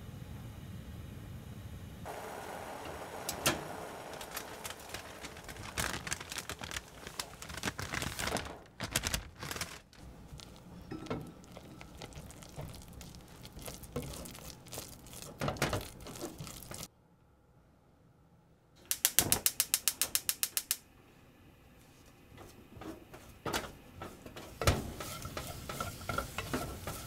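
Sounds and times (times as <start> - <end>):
spatula scraping saucepan: 24.0 - 27.0.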